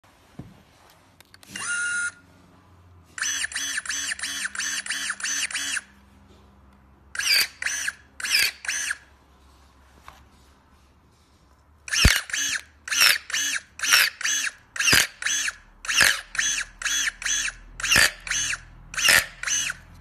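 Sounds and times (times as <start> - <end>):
electric pruning shears motor whining: 11.9 - 20.0.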